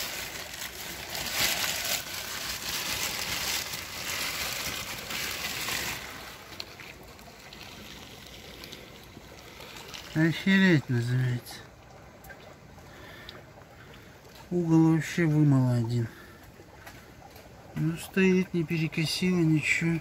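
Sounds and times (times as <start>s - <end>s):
water trickling and splashing: 0.0s - 20.0s.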